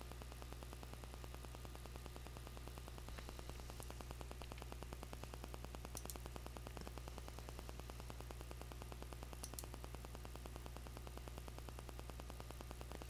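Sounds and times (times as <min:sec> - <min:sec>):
faint electrical hum: 0:00.0 - 0:13.0
static buzz: 0:00.0 - 0:13.0
faint clicks: 0:03.1 - 0:07.0, 0:08.2 - 0:09.8.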